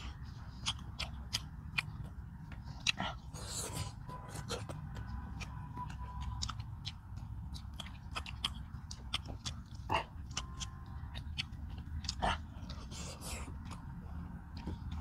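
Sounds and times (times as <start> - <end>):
people chewing with wet smacks: 0.0 - 15.0
steady low hum: 0.0 - 15.0.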